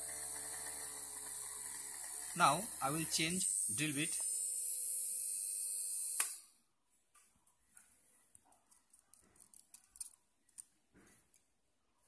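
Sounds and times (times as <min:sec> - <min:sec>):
small motor humming: 0:00.0 - 0:06.4.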